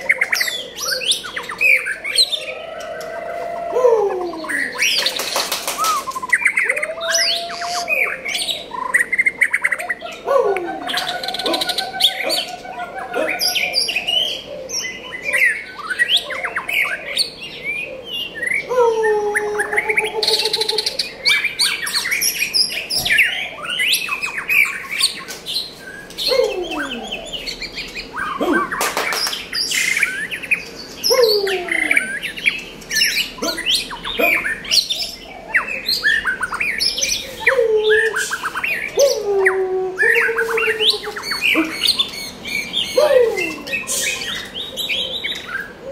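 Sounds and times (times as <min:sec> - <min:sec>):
bird singing whistled phrases: 0:05.8 - 0:09.7.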